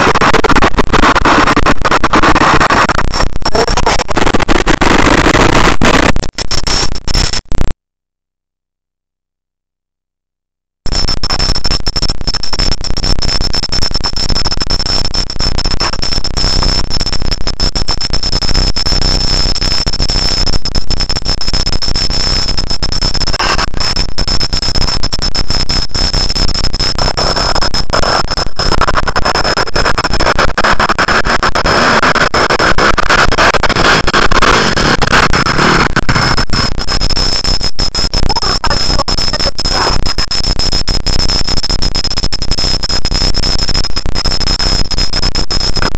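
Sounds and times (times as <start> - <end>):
electronic hiss and crackle: 0.0 - 7.8, 10.9 - 45.9
high-pitched whine: 21.4 - 41.7.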